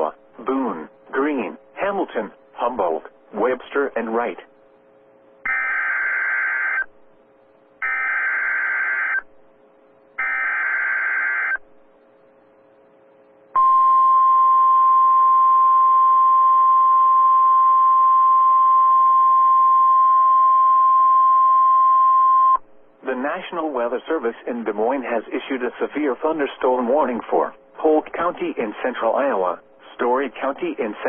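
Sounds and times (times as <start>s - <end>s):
single-pitched alarm tone: 5.4s - 6.9s, 7.8s - 9.3s, 10.2s - 11.6s, 13.6s - 22.6s
screeching digital data bursts: 7.8s - 9.2s, 10.2s - 11.6s.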